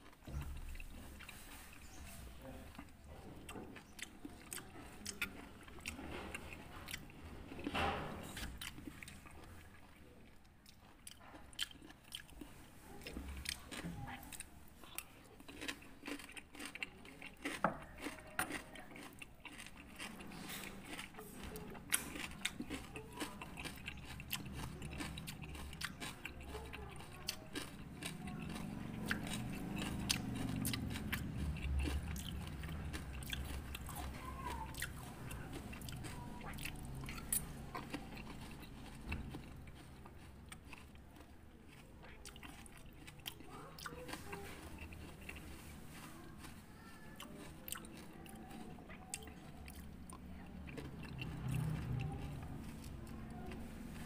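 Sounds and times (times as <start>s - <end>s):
person chewing and crunching: 0.0s - 54.0s.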